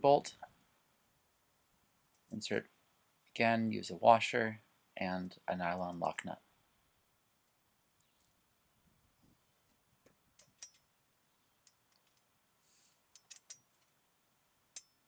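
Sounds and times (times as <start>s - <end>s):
small metallic clicks: 9.7s - 10.9s, 11.6s - 12.3s, 13.1s - 14.0s, 14.7s - 15.0s.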